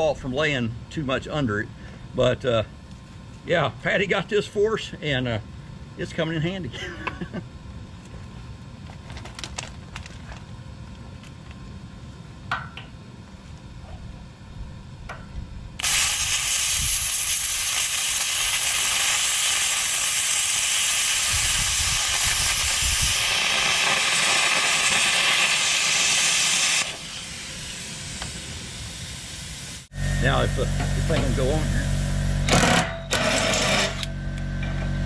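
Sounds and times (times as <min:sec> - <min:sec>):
plasma cutter hissing: 0:15.8 - 0:32.5.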